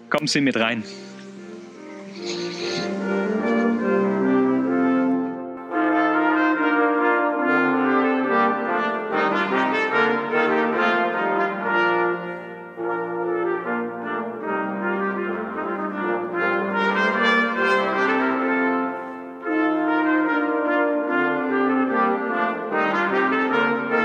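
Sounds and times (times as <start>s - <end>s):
brass chorale in held chords: 0.0s - 24.0s
trumpet: 0.0s - 24.0s.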